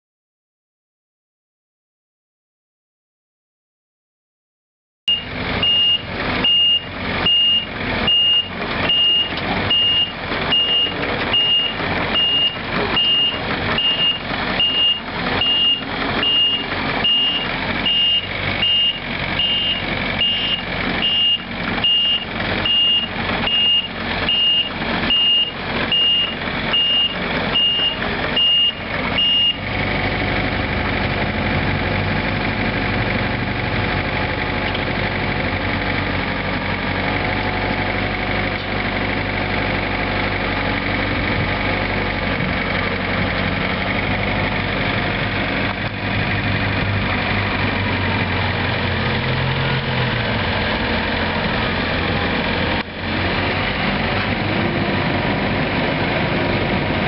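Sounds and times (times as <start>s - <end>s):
travel alarm beeping: 5.1s - 29.6s
diesel engine running: 5.1s - 57.0s.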